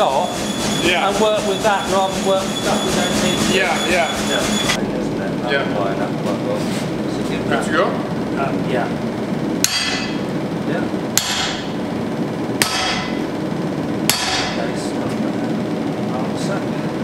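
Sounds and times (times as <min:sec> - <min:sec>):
steady background noise: 0:00.0 - 0:17.0
hammer on anvil: 0:09.6 - 0:10.3, 0:11.2 - 0:11.8, 0:12.6 - 0:13.2, 0:14.1 - 0:14.7.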